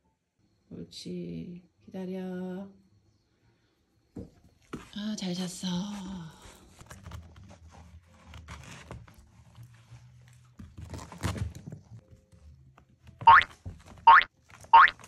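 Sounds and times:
puppy claws scratching a wall: 6.7s - 12.0s
cartoon boing sound effect: 13.3s - 13.5s, 14.1s - 14.9s.

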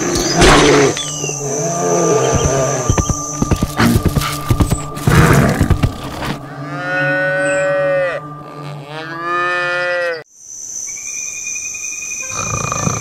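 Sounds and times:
cow mooing: 6.4s - 10.2s.

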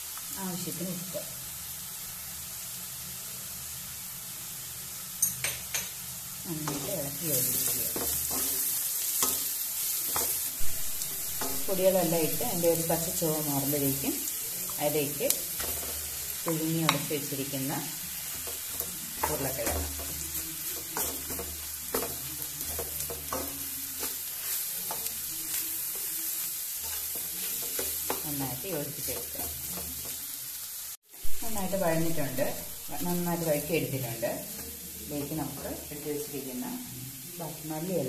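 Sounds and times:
food sizzling: 0.0s - 38.0s
spatula scraping a pan: 6.6s - 13.1s, 18.0s - 30.4s.

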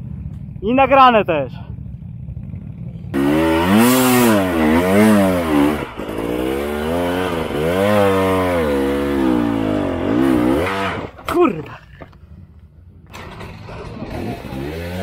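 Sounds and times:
motorcycle engine revving: 1.6s - 11.4s, 13.0s - 15.0s.

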